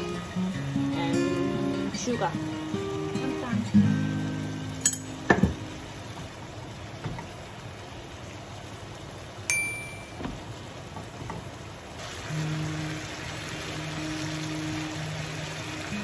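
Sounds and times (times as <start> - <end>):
chicken sizzling in a frying pan: 0.0 - 16.0
spatula clinking on pan: 4.8 - 5.4.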